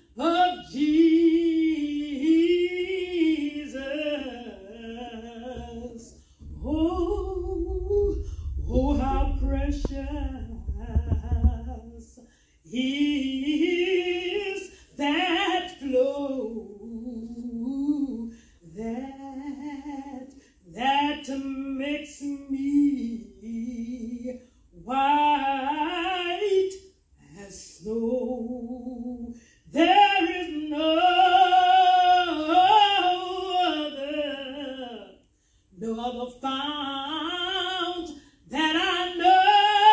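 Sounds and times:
woman singing unaccompanied: 0:00.0 - 0:35.2, 0:35.8 - 0:39.9
low rumble: 0:05.6 - 0:12.2.

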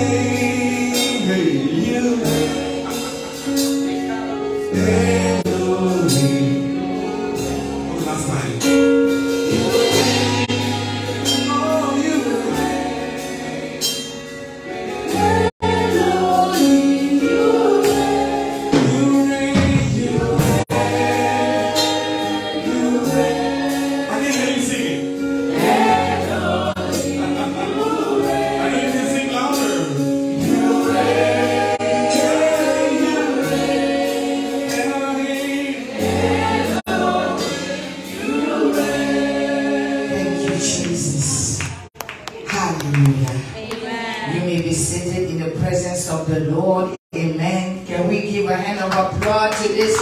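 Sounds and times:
sustained low instrumental chords: 0:00.0 - 0:41.3
lead singer: 0:00.0 - 0:41.5
backing singers: 0:09.6 - 0:41.9.

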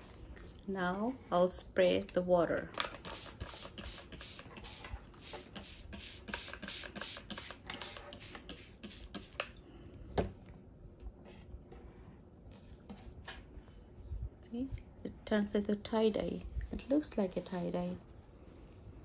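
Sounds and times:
spray bottle squirting: 0:02.7 - 0:09.5.

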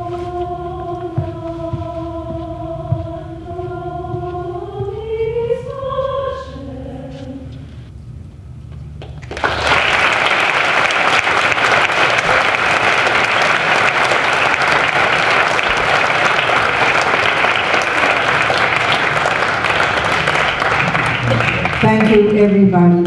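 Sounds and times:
audience applauding: 0:09.2 - 0:22.4.

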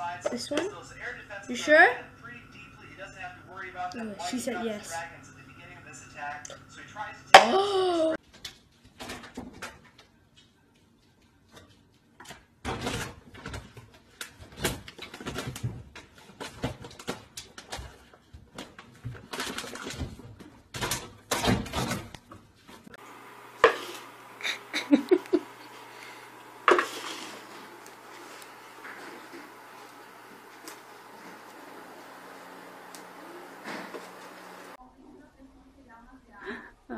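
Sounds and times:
steady low hum: 0:00.0 - 0:08.2, 0:23.0 - 0:34.8.

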